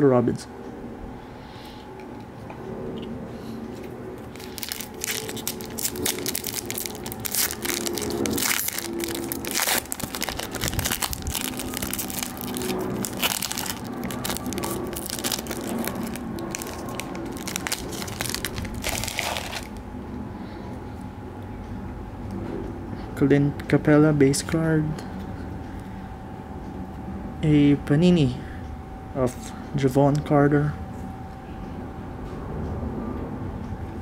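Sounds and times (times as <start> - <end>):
foil wrapper tearing and crinkling: 4.3 - 19.8.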